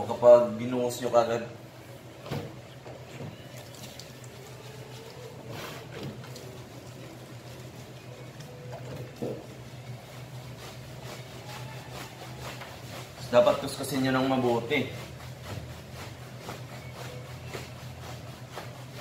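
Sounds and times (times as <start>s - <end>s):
wet squishing of shampoo lather: 3.6s - 5.4s.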